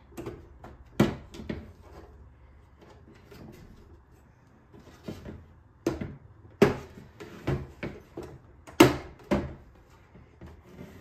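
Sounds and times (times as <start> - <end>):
plastic parts knocking and clicking: 4.7 - 10.6.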